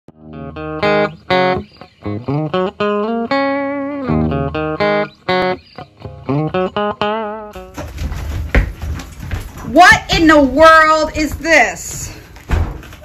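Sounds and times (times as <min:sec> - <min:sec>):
plucked guitar melody: 0:00.1 - 0:07.8.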